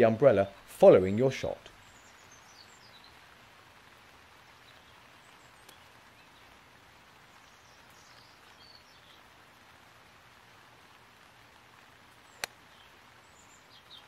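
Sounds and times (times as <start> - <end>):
faint outdoor hiss: 0.0 - 14.0
faint bird chirps: 1.7 - 3.3, 7.3 - 9.4
faint tick: 12.4 - 12.6.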